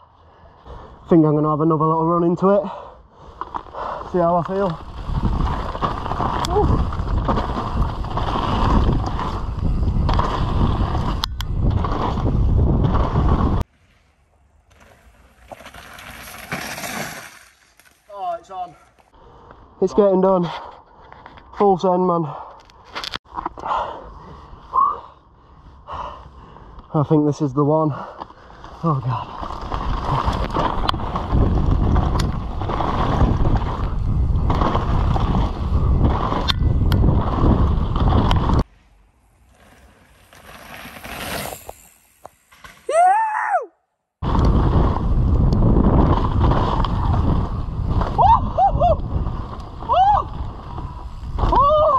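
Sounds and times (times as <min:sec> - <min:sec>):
bike tyres on dirt: 0:00.0 - 0:51.9
wind rushing over microphone: 0:04.0 - 0:13.7, 0:29.2 - 0:38.7, 0:44.2 - 0:51.9
sharp clicks from bike: 0:29.5 - 0:38.6.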